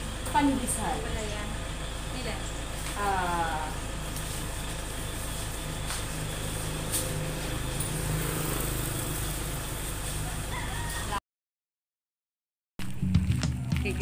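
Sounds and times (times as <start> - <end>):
vehicle engine idling: 0.0 - 10.7.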